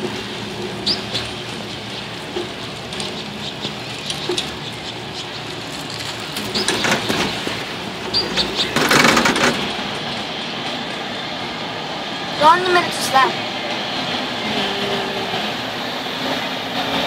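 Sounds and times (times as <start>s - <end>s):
loud rush of rattling: 0.0s - 10.8s
gondola ticks and rattles: 0.0s - 17.0s.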